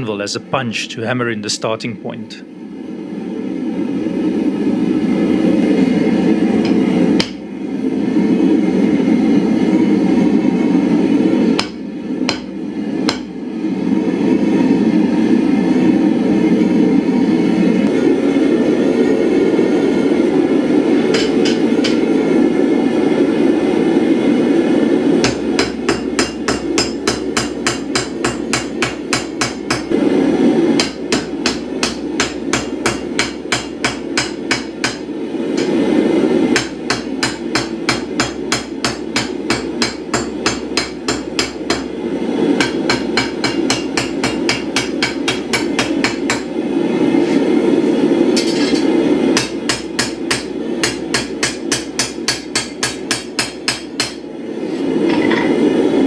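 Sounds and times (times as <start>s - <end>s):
hammer striking hot steel on anvil: 6.6s - 7.4s, 11.5s - 13.4s, 21.1s - 22.1s, 25.2s - 30.0s, 30.7s - 35.8s, 36.5s - 46.5s, 48.3s - 54.3s.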